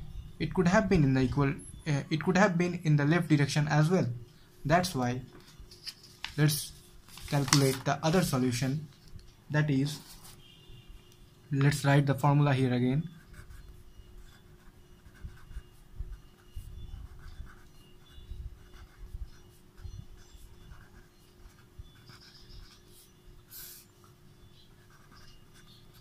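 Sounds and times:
pen scratching on paper: 13.2 - 23.9, 24.8 - 26.0.

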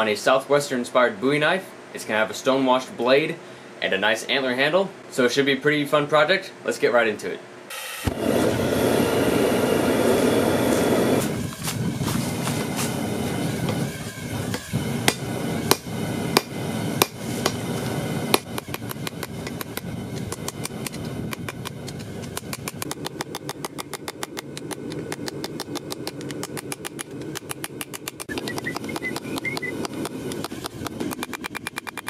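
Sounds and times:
steady low rumble: 8.1 - 31.6.

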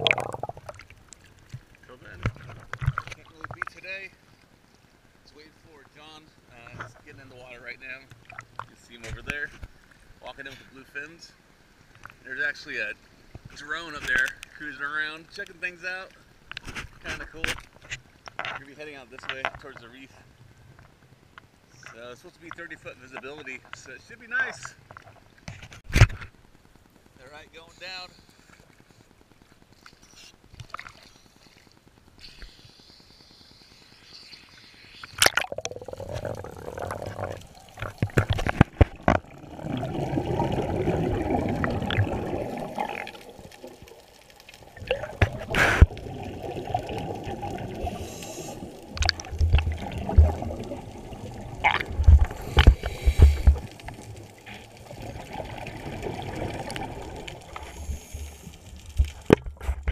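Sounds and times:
air bubbles underwater: 0.0 - 1.2, 35.0 - 59.9.

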